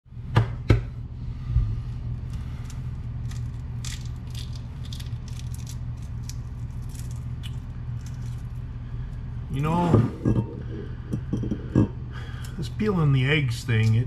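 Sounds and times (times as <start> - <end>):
steady low hum: 0.1 - 14.0
eggshell crackling and scraping: 1.8 - 12.8.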